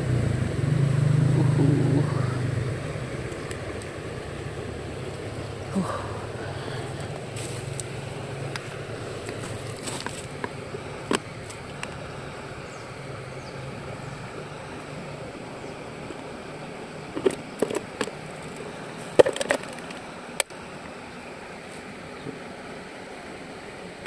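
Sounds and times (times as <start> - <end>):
steady background hiss: 0.0 - 24.0
plastic container clicks and knocks: 19.2 - 19.8.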